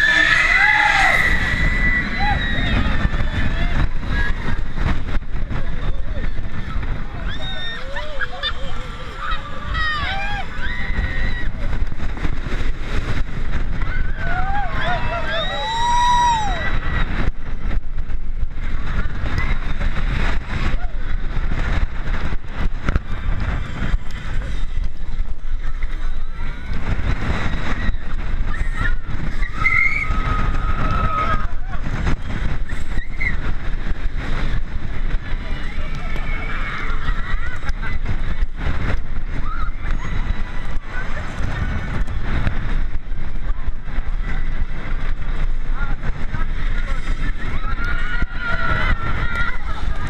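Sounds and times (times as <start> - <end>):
riders screaming and shouting: 0.0 - 50.0
roller coaster wheels rumbling: 0.0 - 50.0
wind buffeting microphone: 0.0 - 50.0.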